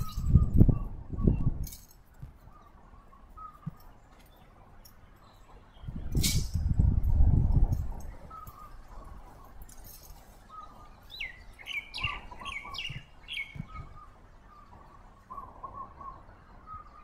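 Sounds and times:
soft short bird calls: 0:02.4 - 0:04.6, 0:08.1 - 0:17.0
soft low thuds: 0:12.0 - 0:14.5.

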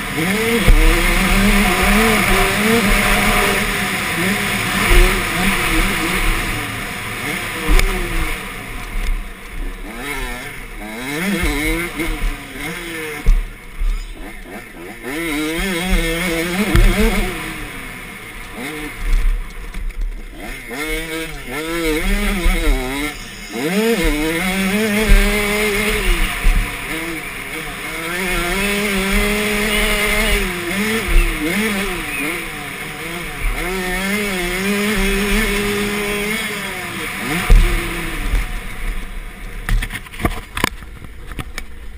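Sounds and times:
motocross bike engine revving: 0:00.0 - 0:41.9
low thumps from ground: 0:00.6 - 0:03.6, 0:13.2 - 0:14.0, 0:15.8 - 0:17.4, 0:24.0 - 0:26.7, 0:37.3 - 0:39.0.

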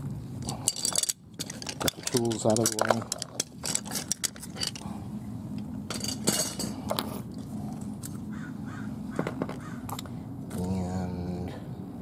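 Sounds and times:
metal hand tools clinking: 0:00.4 - 0:04.8, 0:05.9 - 0:06.8.

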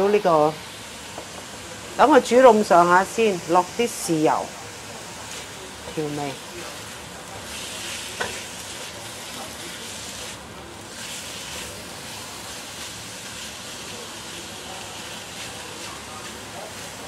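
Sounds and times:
squid sizzling in wok: 0:00.0 - 0:17.0
spatula tapping wok: 0:07.9 - 0:08.7.

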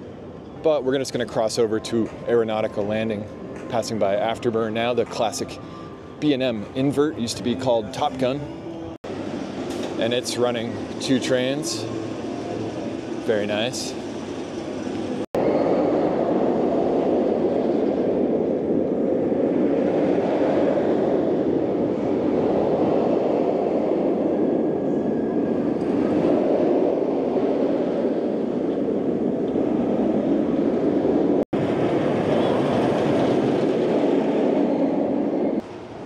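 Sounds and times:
roller coaster train rumbling: 0:09.1 - 0:36.0.

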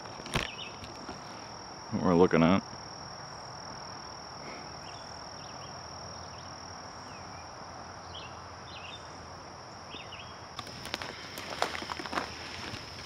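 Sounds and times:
high-pitched insect trill: 0:00.0 - 0:13.0.

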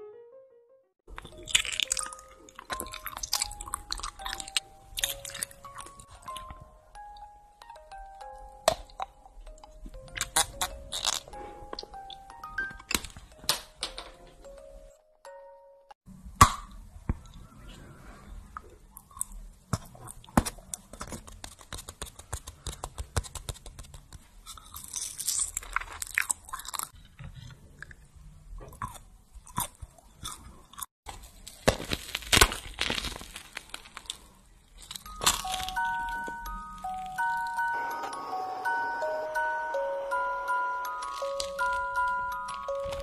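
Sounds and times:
person chewing sweets: 0:01.1 - 0:13.4, 0:18.4 - 0:37.6, 0:40.9 - 0:43.0
sharp crunches: 0:31.1 - 0:35.8.

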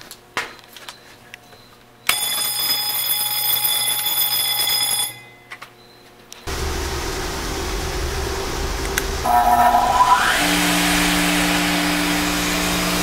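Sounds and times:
blower motor rushing: 0:06.5 - 0:13.0
alarm sounding: 0:09.2 - 0:11.4.

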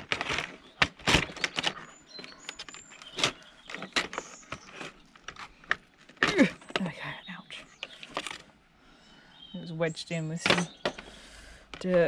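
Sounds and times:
sharp clicks knocks and scraping: 0:00.0 - 0:06.9, 0:07.8 - 0:08.5, 0:10.4 - 0:12.0.

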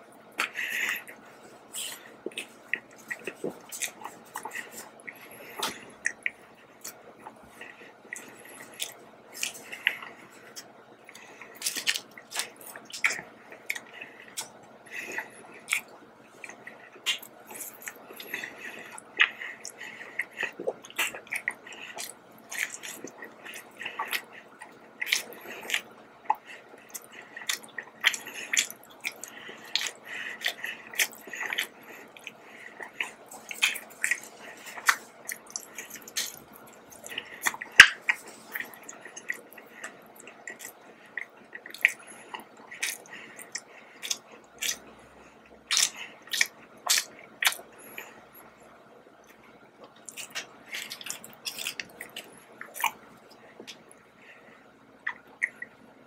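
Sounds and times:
chewing soft dough: 0:00.0 - 0:56.0
mouth clicks: 0:55.1 - 0:55.8.

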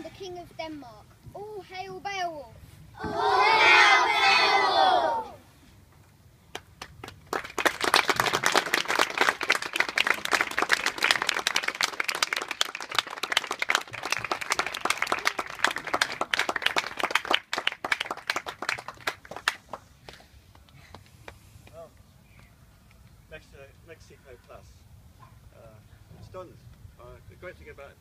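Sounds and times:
audience clapping: 0:06.5 - 0:20.7.

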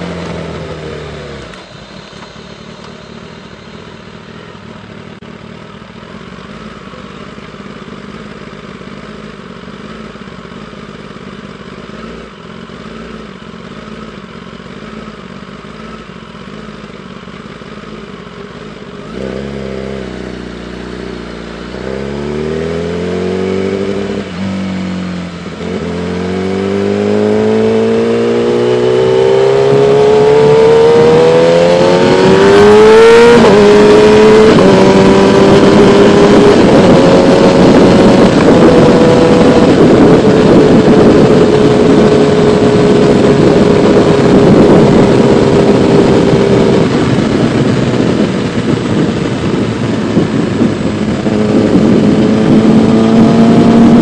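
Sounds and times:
motorcycle engine accelerating: 0:00.0 - 0:54.0
wind rush on microphone: 0:25.6 - 0:54.0.

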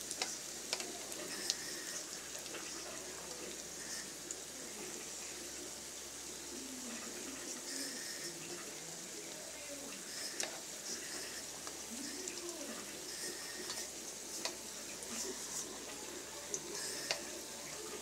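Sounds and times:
hot oil sizzling in a wok: 0:00.0 - 0:18.0.

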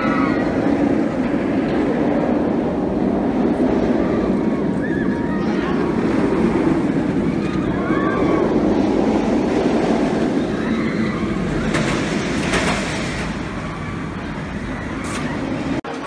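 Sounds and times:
ride train rumbling on track: 0:00.0 - 0:16.0
faint wheel squeal: 0:13.0 - 0:15.6.

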